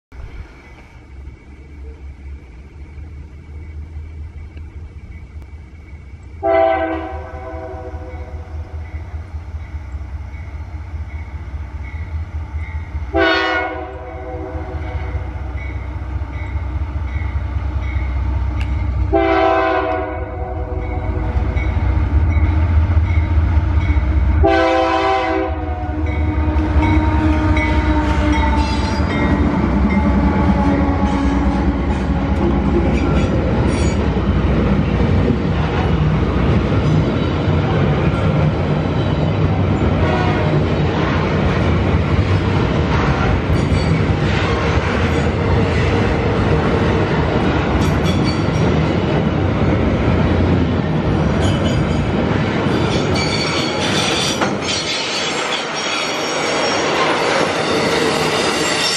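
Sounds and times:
locomotive engine rumble: 0:00.1 - 0:54.9
train horn chord blasts: 0:06.4 - 0:08.6, 0:13.1 - 0:15.3, 0:19.1 - 0:21.3, 0:24.1 - 0:31.8, 0:39.9 - 0:40.6.

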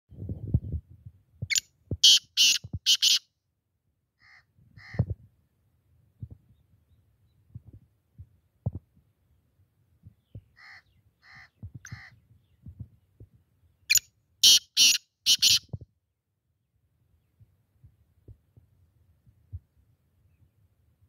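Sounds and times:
francolin calling: 0:01.5 - 0:03.2, 0:13.9 - 0:15.7.

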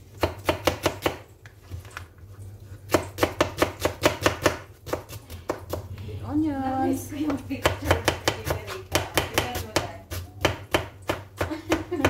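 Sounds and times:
knife chopping onion on board: 0:00.2 - 0:01.3, 0:02.9 - 0:05.9, 0:07.2 - 0:12.0.

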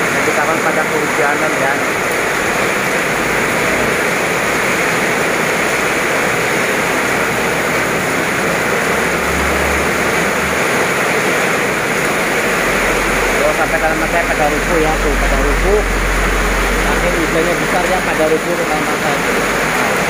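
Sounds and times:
heavy rain pouring: 0:00.0 - 0:20.0.

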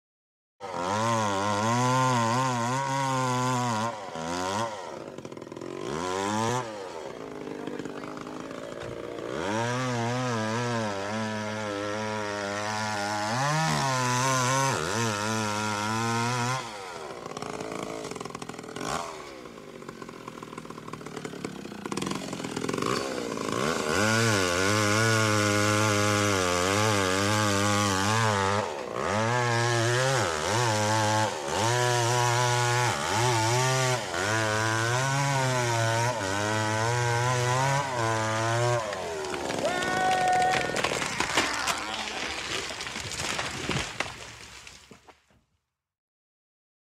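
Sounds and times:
chainsaw engine running: 0:00.6 - 0:44.3.

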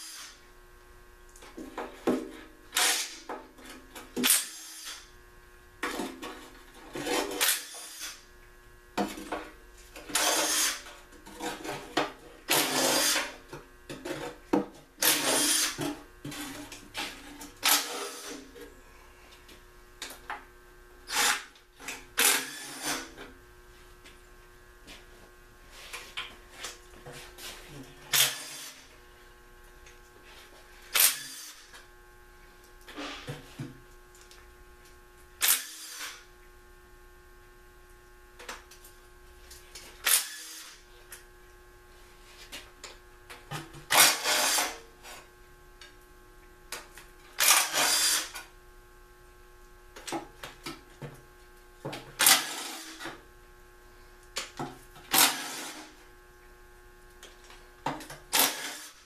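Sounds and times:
impact wrench bursts: 0:47.4 - 0:48.4, 0:58.3 - 0:59.0.

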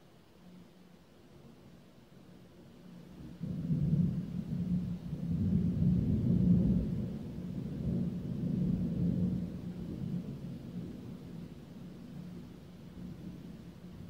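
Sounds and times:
thunder rumble: 0:03.3 - 0:11.6.

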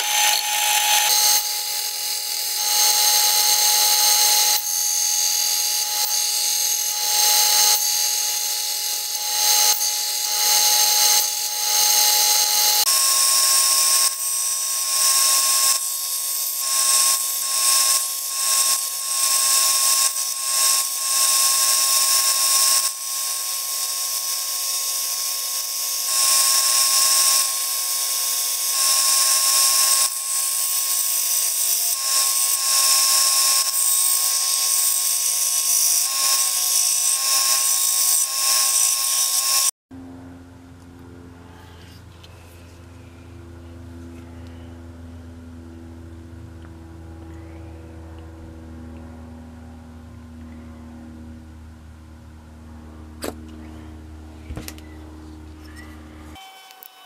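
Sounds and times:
belt sander motor whine: 0:00.0 - 0:51.6, 0:52.5 - 0:57.0.

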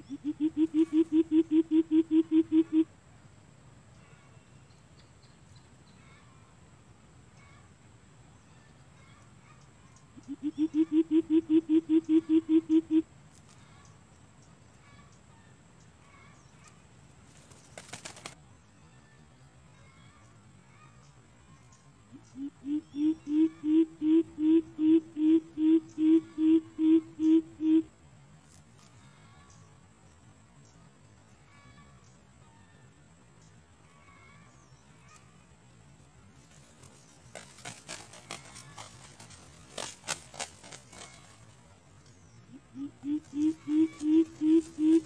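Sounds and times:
bird calling in deep hoots: 0:00.0 - 0:02.9, 0:10.2 - 0:13.1, 0:22.1 - 0:27.9, 0:42.4 - 0:45.0.

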